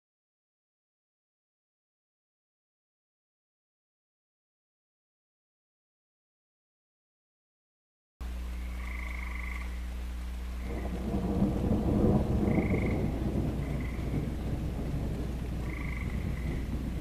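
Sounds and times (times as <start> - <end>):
thunder rumbling: 10.6 - 17.0.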